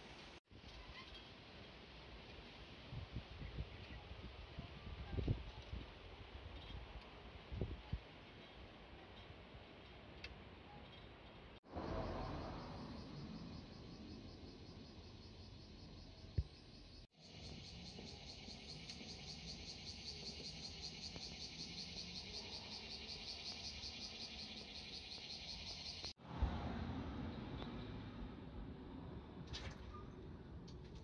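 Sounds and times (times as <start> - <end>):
insects chirping: 11.7 - 26.2.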